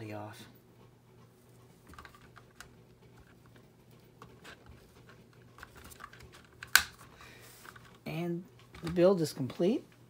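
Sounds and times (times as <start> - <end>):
plastic part snapping into place: 6.6 - 7.0.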